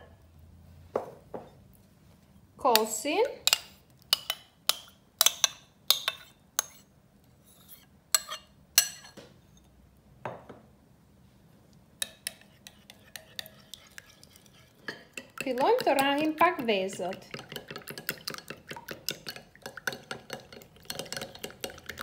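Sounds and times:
spoon tapping in glass bowl: 0:03.5 - 0:06.7
metal spoon clinking on ceramic bowl: 0:03.5 - 0:06.8, 0:08.2 - 0:09.2.

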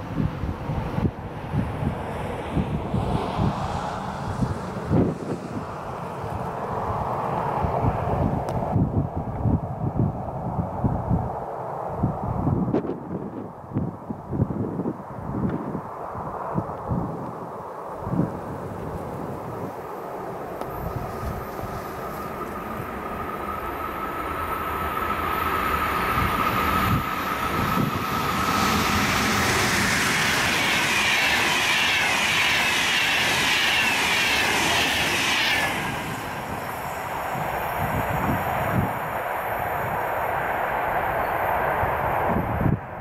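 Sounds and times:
high rail tone: 0:00.0 - 0:43.0
train wheels rushing on rails: 0:15.5 - 0:43.0.

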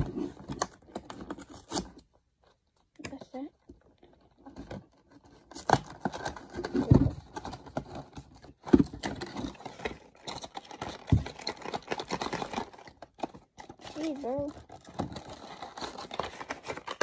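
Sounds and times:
cardboard scraping and rustling: 0:00.0 - 0:02.1, 0:04.3 - 0:12.2.

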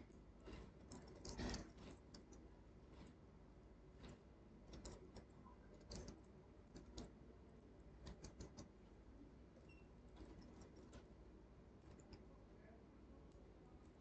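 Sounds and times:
keyboard typing: 0:00.4 - 0:03.1, 0:04.0 - 0:07.1, 0:08.0 - 0:08.7.

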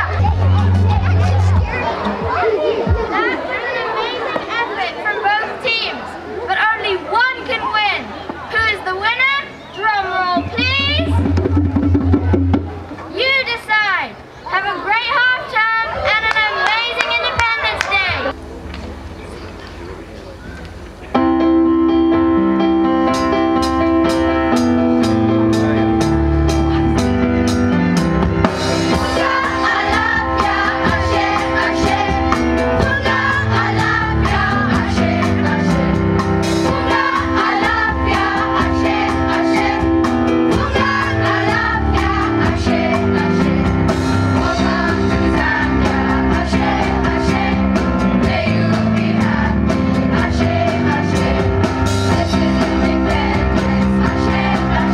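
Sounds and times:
percussion beat: 0:10.4 - 0:13.1, 0:28.2 - 0:47.6
voices singing: 0:28.5 - 0:54.9.

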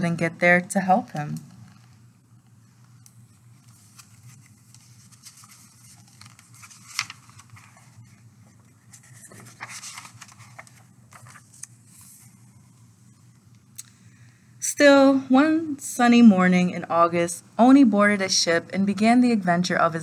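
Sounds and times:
low steady hum: 0:00.0 - 0:20.0
book pages rustling: 0:03.4 - 0:12.6.

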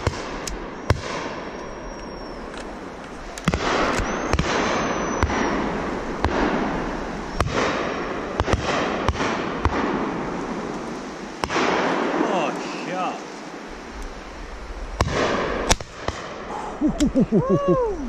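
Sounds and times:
shotguns firing: 0:03.4 - 0:06.7, 0:07.4 - 0:10.2, 0:11.4 - 0:12.3.

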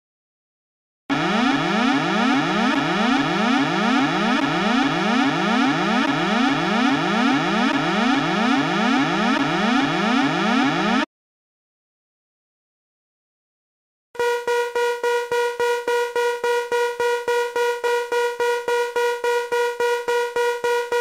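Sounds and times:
buzzy electronic alarm sweeping up: 0:01.1 - 0:11.1, 0:14.2 - 0:21.0.

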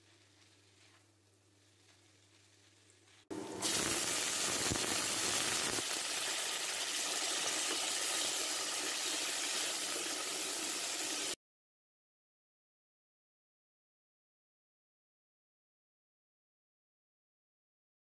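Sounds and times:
vegetables sizzling in hot oil: 0:03.3 - 0:11.4.

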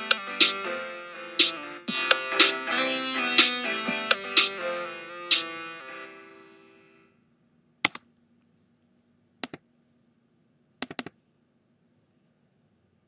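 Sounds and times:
ringtone chord ringing out: 0:00.0 - 0:07.0
computer mouse clicks: 0:07.8 - 0:08.1, 0:09.4 - 0:09.6, 0:10.8 - 0:11.2.

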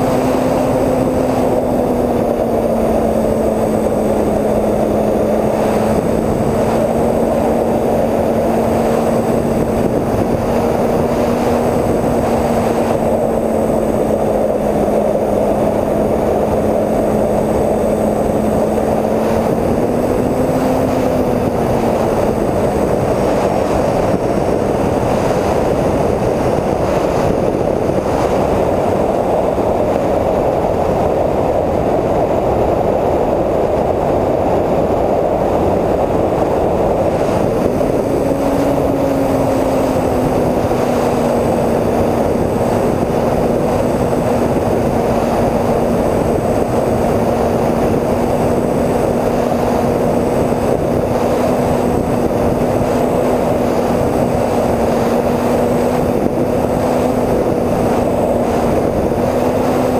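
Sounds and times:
electric plane motors humming: 0:00.0 - 0:29.1
wind rushing over airframe: 0:00.0 - 0:59.9.

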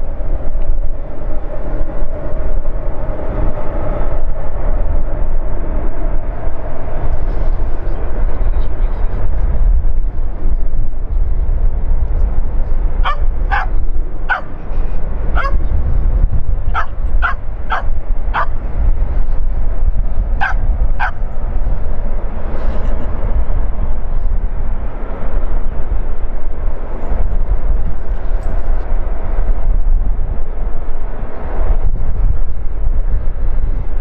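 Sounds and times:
loud steady low rumble: 0:00.0 - 0:34.0
dog barking: 0:13.0 - 0:14.5, 0:15.4 - 0:15.6, 0:16.8 - 0:18.5, 0:20.4 - 0:21.2.

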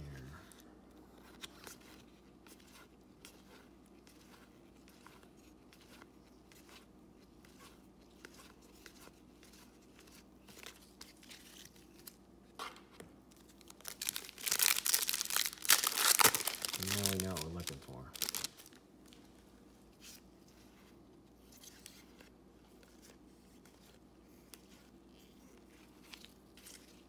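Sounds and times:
foil wrapper crinkling: 0:13.4 - 0:18.8.

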